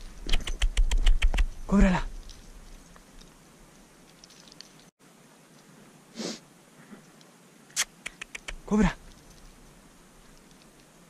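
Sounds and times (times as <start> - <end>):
rustling in dry grass: 0.0 - 8.4.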